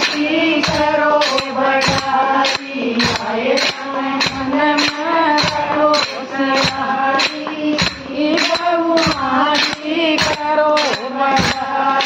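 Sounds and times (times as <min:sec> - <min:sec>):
small hand cymbals clashing: 0:00.0 - 0:12.0
women singing devotional song: 0:00.0 - 0:12.0.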